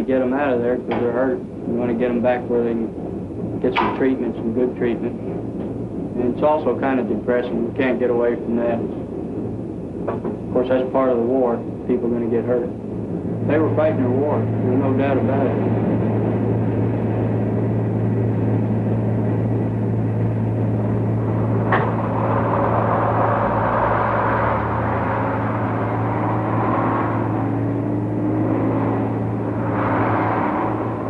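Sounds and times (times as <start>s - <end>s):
turboprop engines droning: 0.0s - 31.0s
vehicle engine pulling away: 10.4s - 31.0s.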